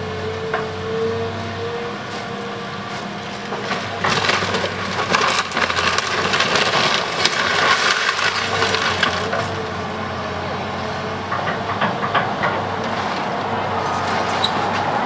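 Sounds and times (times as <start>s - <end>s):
excavator engine hum: 0.0s - 15.0s
wood crunching and splintering: 3.3s - 9.7s.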